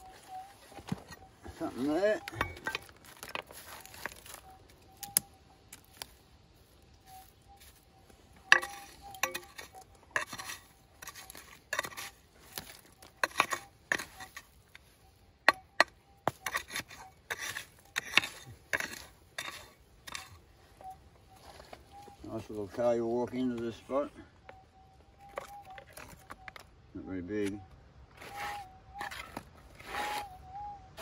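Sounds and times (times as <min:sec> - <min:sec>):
stones scraping: 0:00.0 - 0:06.2, 0:08.4 - 0:20.4, 0:25.2 - 0:26.6, 0:28.2 - 0:30.4.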